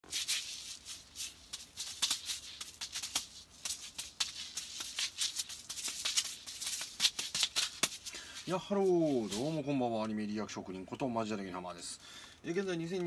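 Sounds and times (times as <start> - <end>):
juggling balls caught in hand: 1.5 - 8.2.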